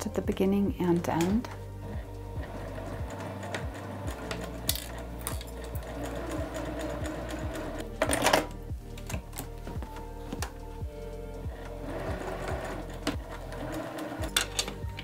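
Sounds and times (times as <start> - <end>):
sewing machine stitching: 1.8 - 8.4, 11.5 - 14.8.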